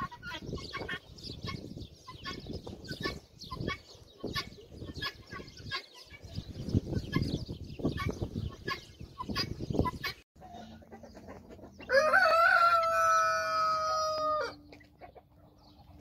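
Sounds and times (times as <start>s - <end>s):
guinea fowl calling: 0.0s - 6.3s.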